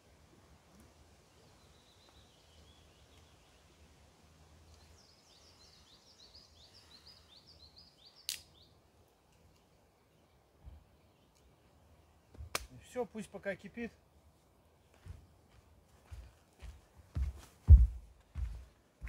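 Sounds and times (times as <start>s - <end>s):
songbird chirping: 0.6s - 17.4s
sharp click: 8.3s - 8.5s.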